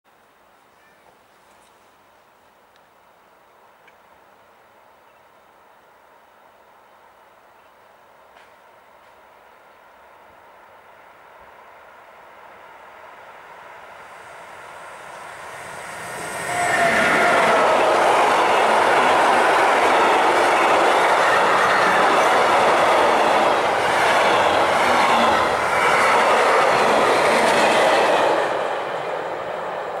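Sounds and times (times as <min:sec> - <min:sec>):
freight train passing: 0:08.8 - 0:30.0.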